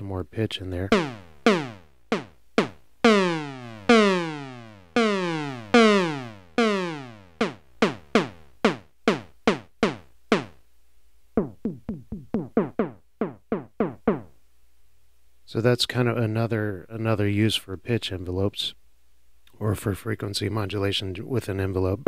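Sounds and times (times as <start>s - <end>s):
synthesizer percussive zap notes: 0.8s - 10.6s, 11.4s - 14.3s.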